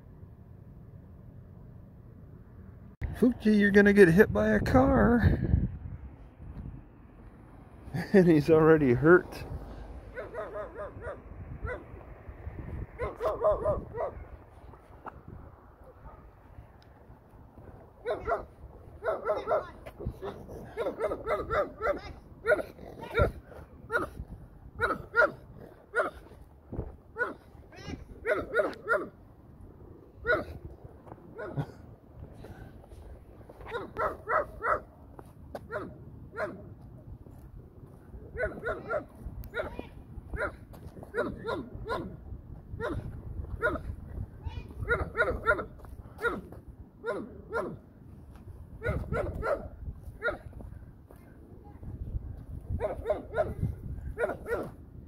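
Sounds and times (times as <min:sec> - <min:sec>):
small dog yapping: 0:13.0 - 0:14.2, 0:18.0 - 0:24.2, 0:24.8 - 0:26.2, 0:27.2 - 0:27.4, 0:28.2 - 0:29.1, 0:38.4 - 0:42.2, 0:44.8 - 0:47.8, 0:48.8 - 0:50.5, 0:54.2 - 0:54.7.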